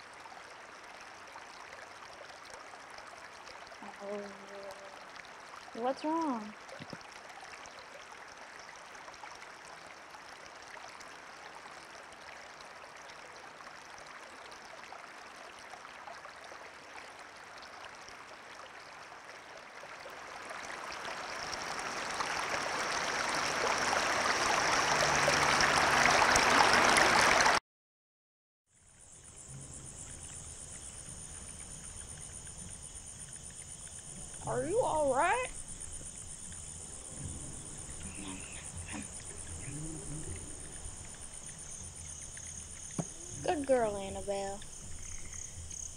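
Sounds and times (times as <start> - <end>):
rushing water: 0.0 - 27.6, 28.8 - 45.9
insects chirring: 28.7 - 45.9.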